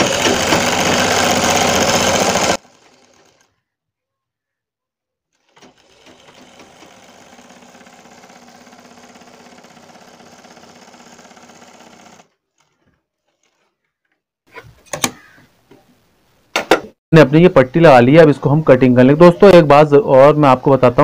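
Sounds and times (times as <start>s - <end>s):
sewing machine running: 0.0s - 3.6s, 5.3s - 13.7s.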